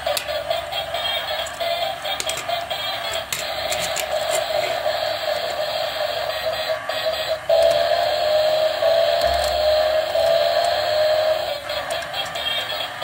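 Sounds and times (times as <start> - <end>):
tinny electronic toy tune: 4.9 - 13.0.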